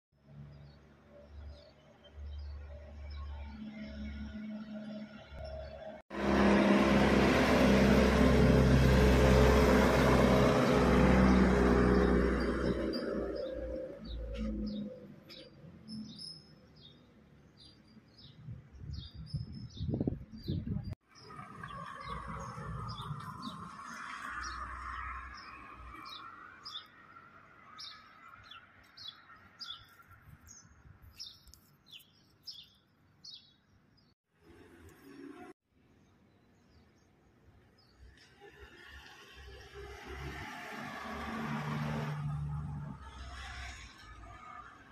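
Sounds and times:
engine humming: 4.4 - 15.6
small bird chirping: 27.8 - 34.2.

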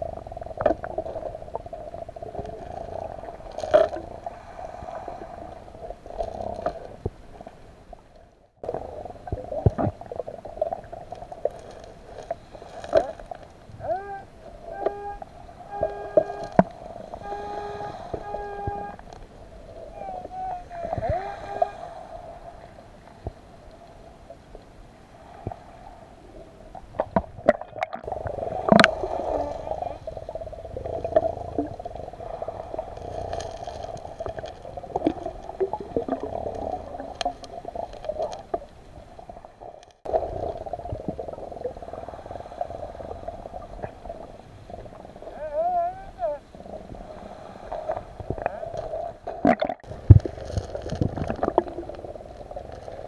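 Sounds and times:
underwater hum and gurgling: 0.0 - 53.0
pebbles clicking underwater: 32.7 - 38.7, 48.3 - 53.0.

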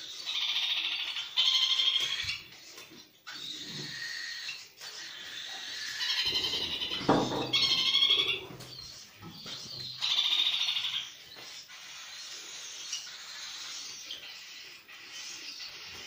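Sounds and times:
parakeets squawking and chirping: 0.0 - 16.0.

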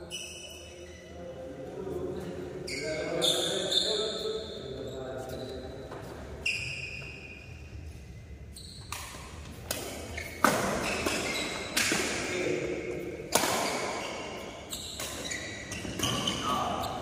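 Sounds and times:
rackets striking shuttlecock: 8.8 - 16.3.

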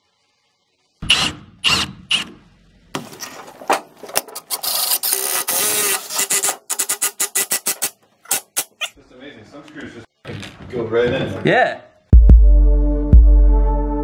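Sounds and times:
power drill boring into wood: 4.6 - 8.4.

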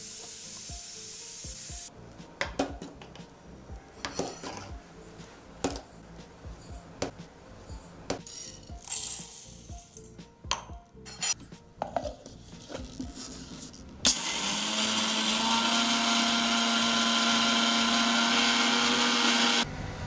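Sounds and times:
mixer grinder motor running: 14.1 - 20.0.

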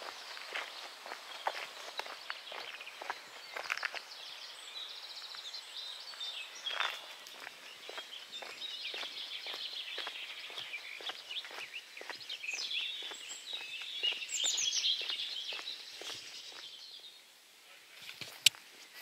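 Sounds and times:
footsteps on tarmac: 0.0 - 16.9
birdsong: 0.0 - 19.0.

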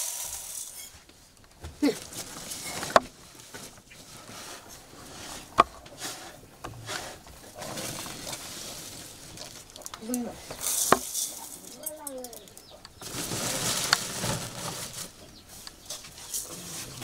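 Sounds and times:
metal scoop scraping steel bowl: 0.0 - 1.0
plastic sack rustling: 0.0 - 17.0.

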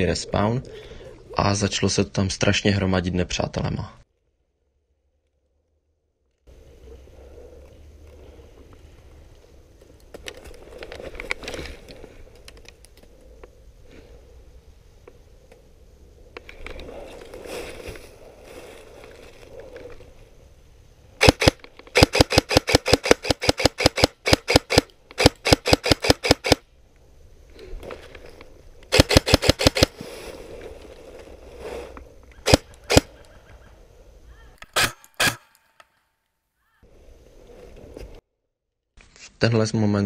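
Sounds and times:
rustling in dry leaves: 16.9 - 20.3, 27.6 - 33.6
airsoft rifle shots: 21.2 - 26.6, 28.9 - 29.9, 32.4 - 33.1, 34.7 - 35.5.

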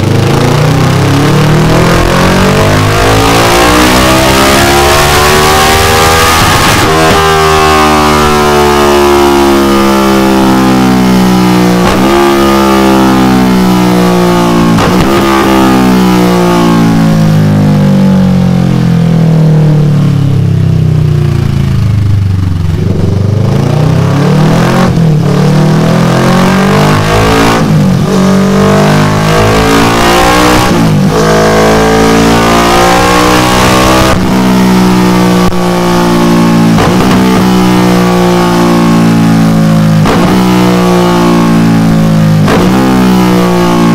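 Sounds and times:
motorcycle engine revving: 0.0 - 43.9
exhaust cracks: 36.6 - 37.7.

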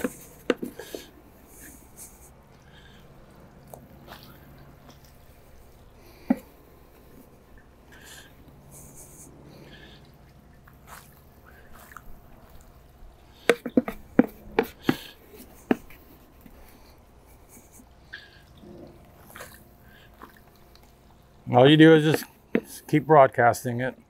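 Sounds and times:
plastic scoop knocking in bucket: 13.4 - 15.9.

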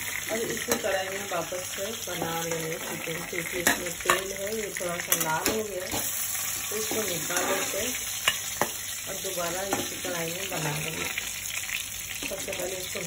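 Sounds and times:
chicken sizzling in oil: 0.0 - 13.0
metal spatula scraping pan: 5.1 - 8.8.

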